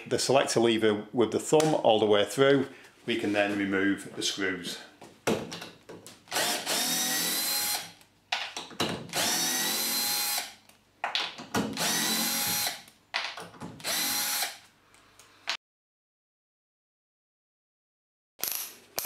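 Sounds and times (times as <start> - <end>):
cordless drill whining: 6.3 - 7.9, 9.1 - 10.6, 11.8 - 12.8, 13.8 - 14.6.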